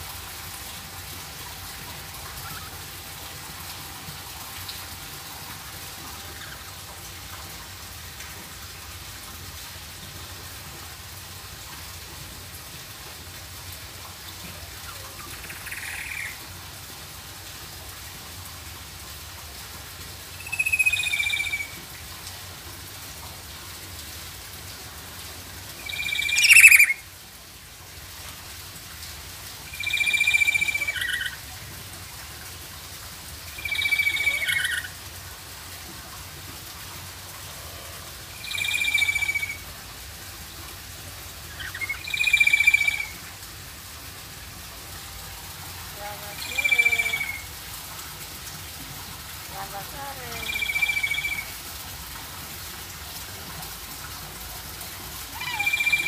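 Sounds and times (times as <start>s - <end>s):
parrot calling: 20.4s - 21.8s, 25.8s - 27.0s, 29.7s - 31.4s, 33.5s - 34.9s, 38.4s - 39.6s, 41.5s - 43.2s, 46.3s - 47.5s, 50.1s - 51.5s, 55.3s - 56.0s.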